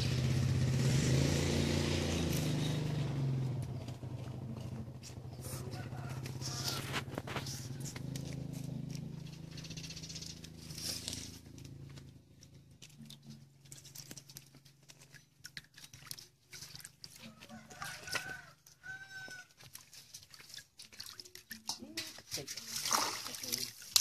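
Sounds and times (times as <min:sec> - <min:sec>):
hen clucking: 0:05.4 - 0:08.1
shells clicking together in water: 0:12.8 - 0:19.5, 0:20.1 - 0:24.0.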